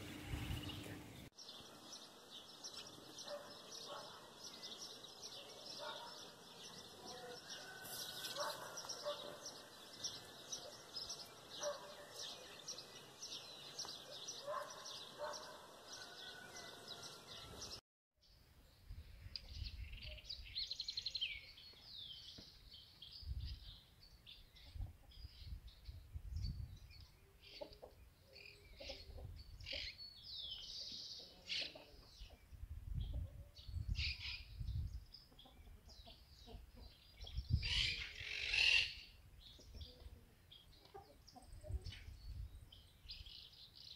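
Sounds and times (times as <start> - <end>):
wind rumbling on microphone: 0.0 - 1.3, 18.8 - 20.8, 23.1 - 23.8, 24.5 - 27.1, 32.4 - 35.2, 37.2 - 38.0, 41.5 - 42.8
small birds chirping: 0.0 - 43.9.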